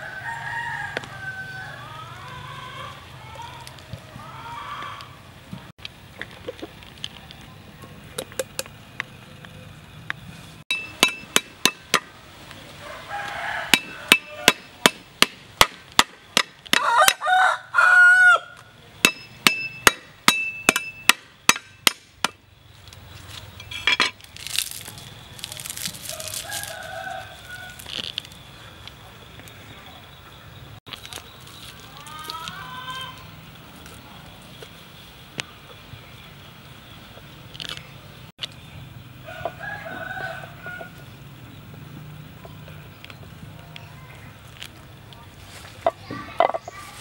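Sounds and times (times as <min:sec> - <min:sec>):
rooster crowing: 0:00.0 - 0:03.0, 0:12.8 - 0:14.7, 0:16.8 - 0:18.7, 0:26.1 - 0:27.9, 0:39.2 - 0:41.1
cleaver chopping on wooden board: 0:13.7 - 0:17.2
leafy greens rustling: 0:22.6 - 0:29.8, 0:30.9 - 0:34.9, 0:43.2 - 0:47.0.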